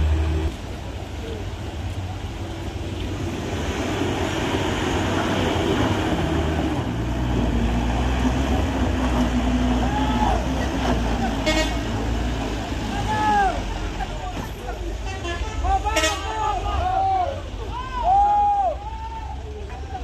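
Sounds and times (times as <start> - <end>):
heavy vehicle engine rumbling: 0.0 - 20.0.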